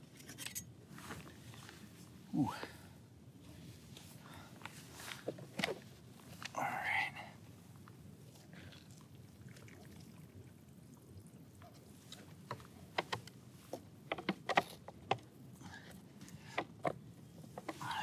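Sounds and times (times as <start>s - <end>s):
water trickling into container: 8.7s - 11.6s.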